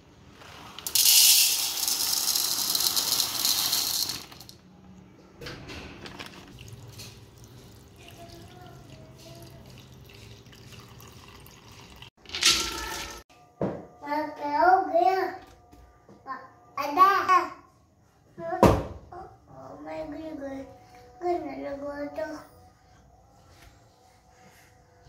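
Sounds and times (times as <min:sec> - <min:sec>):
dry grains poured into a bowl: 0:00.4 - 0:04.5
grains tipped into a steel pot: 0:00.5 - 0:04.5.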